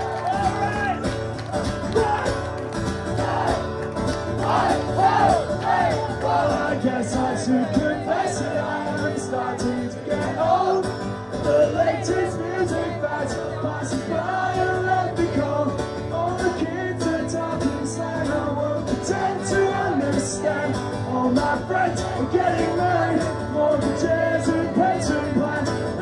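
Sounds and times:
acoustic guitar strumming: 0.0 - 26.0
man singing: 6.2 - 26.0.

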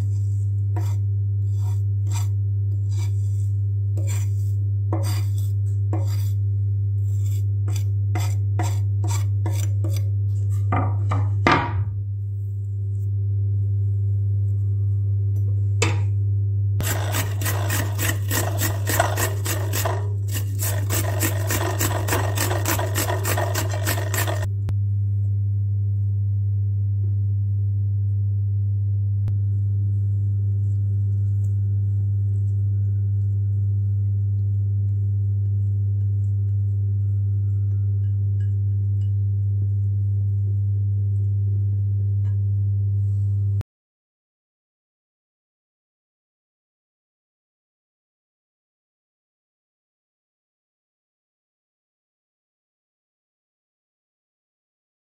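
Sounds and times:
steady low hum: 0.0 - 43.6
cucumber grated on metal grater: 5.0 - 6.3, 16.8 - 24.5.

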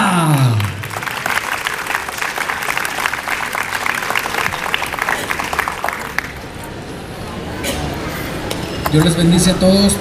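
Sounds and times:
small crowd applauding: 0.1 - 6.4.

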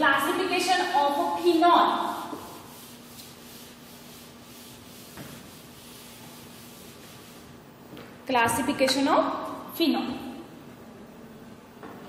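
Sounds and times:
duster rubbing on chalkboard: 0.0 - 7.6.

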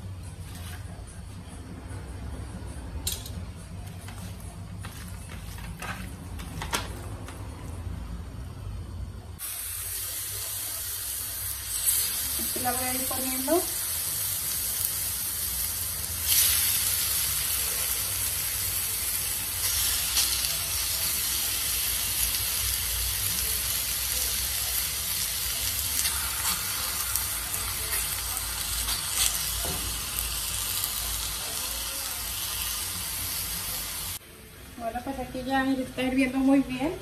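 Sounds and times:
chicken frying on a griddle: 9.4 - 34.2.

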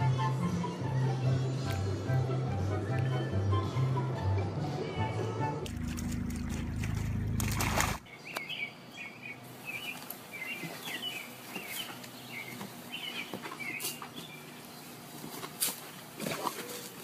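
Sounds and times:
loud water splash: 5.7 - 8.1
small birds chirping: 8.0 - 15.1.

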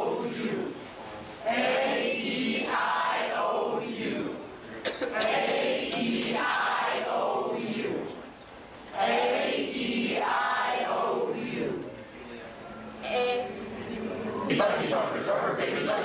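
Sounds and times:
group chanting in unison: 0.0 - 0.8, 1.4 - 4.4, 5.1 - 8.2, 8.9 - 11.8.

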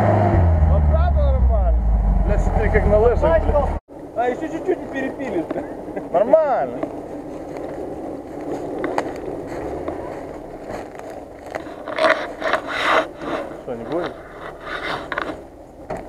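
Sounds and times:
car engine humming: 0.0 - 3.8.

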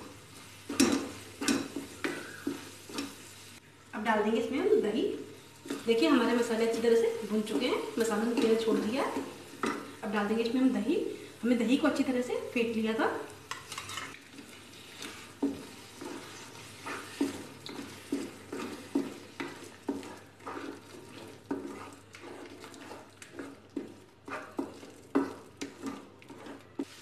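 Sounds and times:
faint sizzle: 0.0 - 27.0
metal spoon scraping a metal pan: 13.5 - 27.0.

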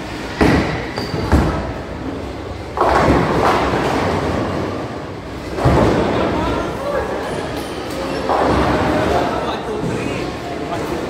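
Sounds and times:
bowling balls rolling: 0.0 - 6.6, 7.2 - 11.0
bowling pins crashing: 2.7 - 4.8.

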